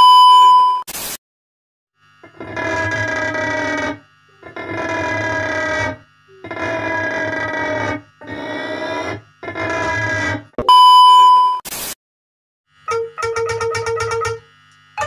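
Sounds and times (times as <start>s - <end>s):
electric guitar buzzing notes: 12.8s - 15.0s.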